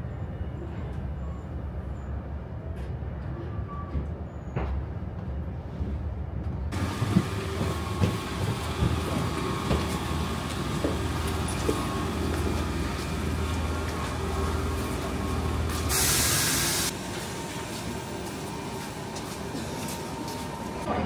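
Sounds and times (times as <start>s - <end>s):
loud hiss: 15.8s - 17.0s.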